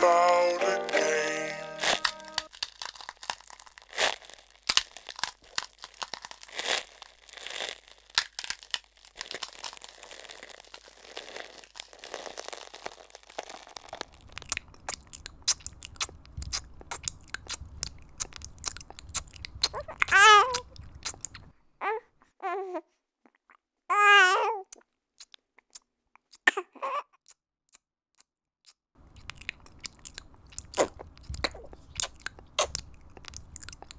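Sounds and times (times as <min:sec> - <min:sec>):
crackling and rustling: 0:01.8 - 0:21.5.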